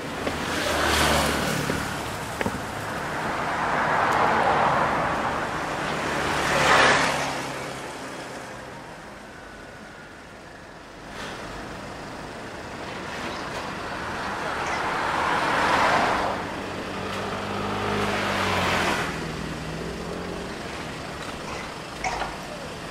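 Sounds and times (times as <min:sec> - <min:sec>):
vehicles passing: 0:00.0 - 0:22.9.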